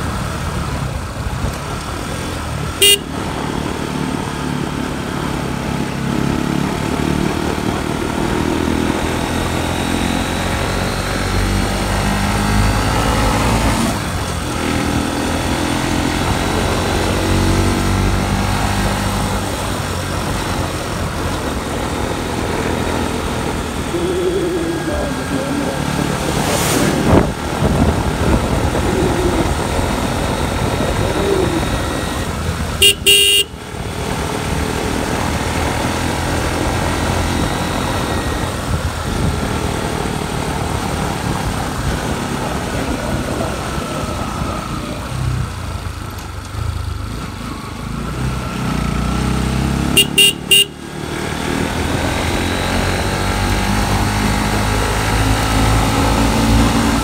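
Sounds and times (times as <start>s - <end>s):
motorcycle engine rumble: 0.0s - 57.0s
horn beeps: 2.8s - 3.2s, 32.8s - 33.6s, 50.0s - 50.9s.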